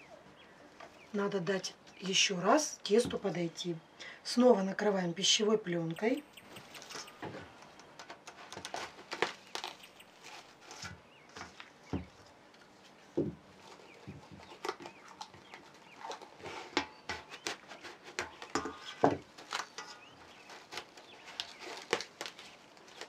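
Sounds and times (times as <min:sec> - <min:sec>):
cling film crinkling: 0:06.3 - 0:11.8, 0:12.6 - 0:23.0.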